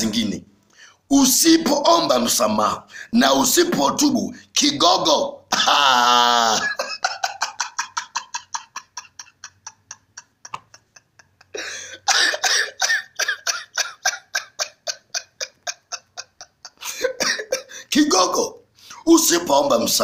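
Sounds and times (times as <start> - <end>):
man laughing: 5.5 - 18.0.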